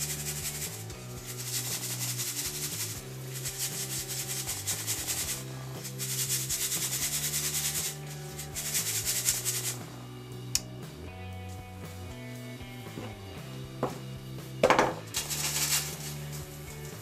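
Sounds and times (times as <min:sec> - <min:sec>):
flour sifting through metal sieve: 0:00.0 - 0:10.0, 0:14.6 - 0:17.0
sharp click: 0:10.5 - 0:10.7.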